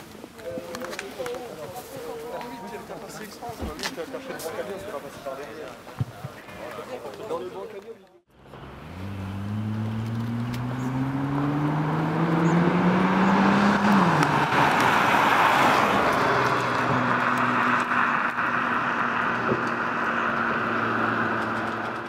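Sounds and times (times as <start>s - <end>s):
car engine accelerating hard: 8.3s - 22.0s.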